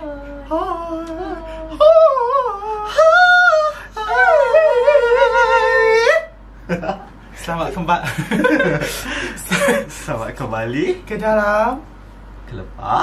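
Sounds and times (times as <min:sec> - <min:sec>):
person singing in falsetto: 0:00.0 - 0:06.3.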